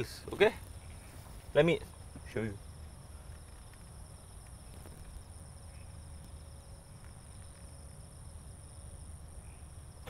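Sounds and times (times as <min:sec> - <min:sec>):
crickets trilling: 0:00.0 - 0:10.0.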